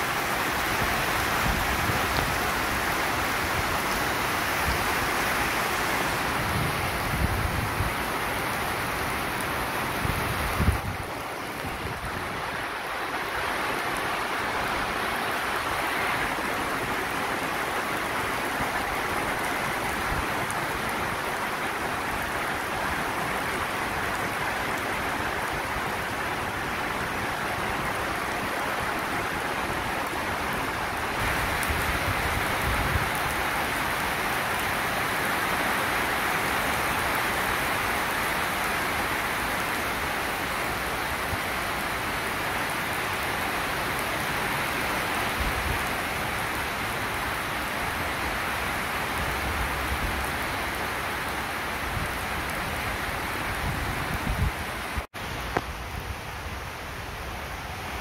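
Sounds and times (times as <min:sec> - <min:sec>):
heavy rain pouring: 0:00.0 - 0:58.0.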